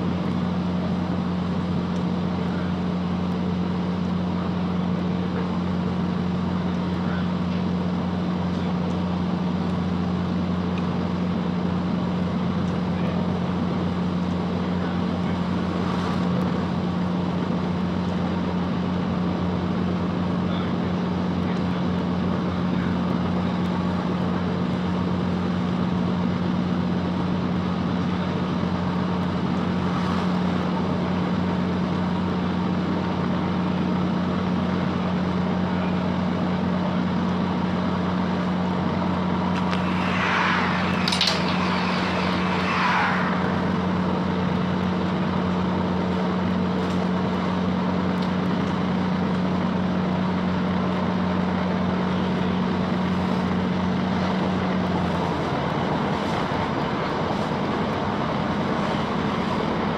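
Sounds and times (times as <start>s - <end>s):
diesel train drone: 0.0s - 59.9s
wheel-on-rail noise: 36.5s - 59.9s
train screech and rush: 38.5s - 46.4s.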